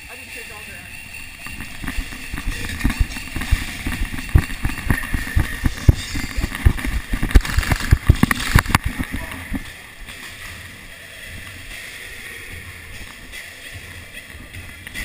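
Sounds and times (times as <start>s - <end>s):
running footsteps on concrete: 1.0s - 9.7s.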